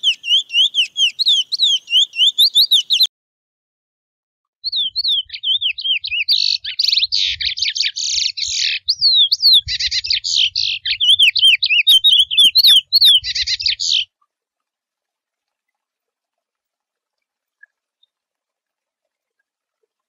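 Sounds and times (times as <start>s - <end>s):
finch singing whistled buzzy song: 0.0s - 3.1s, 4.6s - 14.1s.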